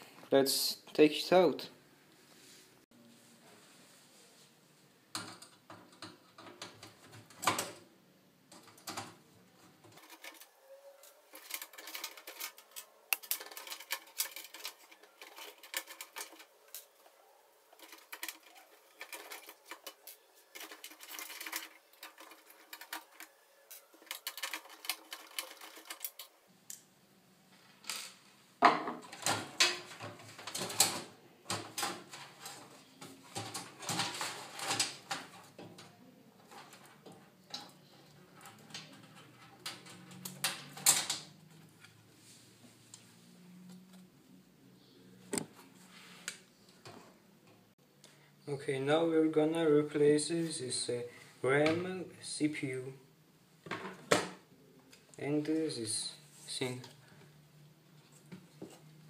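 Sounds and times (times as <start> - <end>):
plastic connectors clicking and rattling: 9.8 - 16.9, 17.7 - 26.8, 29.0 - 41.4.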